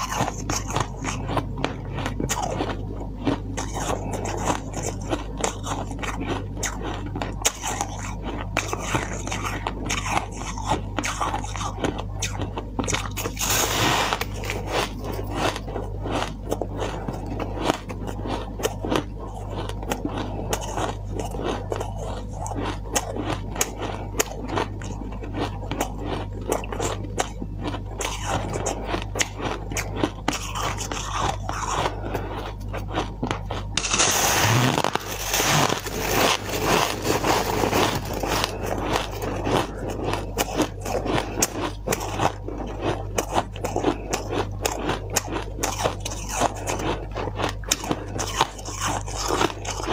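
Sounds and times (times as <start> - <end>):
ice crunching being chewed: 0.0 - 49.9
steady low hum: 0.0 - 49.9
fingers crumbling ice in bowl: 28.0 - 49.9.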